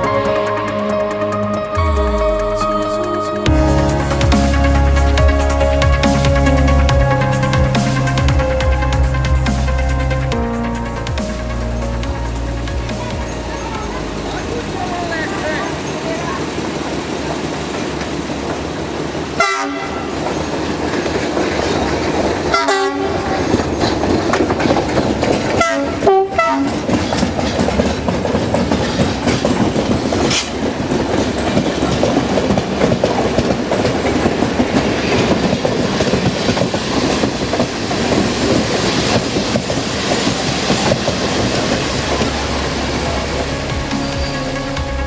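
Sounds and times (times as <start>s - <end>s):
diesel locomotive passing: 0.0s - 45.0s
train horn blasts: 19.4s - 20.2s, 22.5s - 23.5s, 25.6s - 26.8s
train wheels clattering over rail joints: 20.1s - 43.4s.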